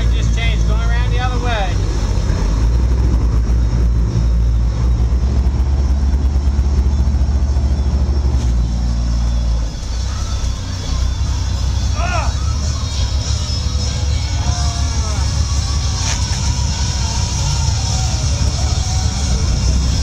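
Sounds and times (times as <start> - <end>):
boat engine droning: 0.0 - 20.0.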